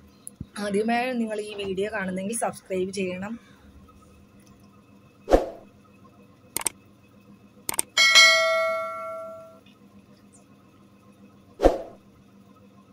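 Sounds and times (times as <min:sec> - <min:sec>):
quick double clicks: 0:06.6 - 0:06.8, 0:07.7 - 0:08.0
notification bell ding: 0:08.0 - 0:09.6.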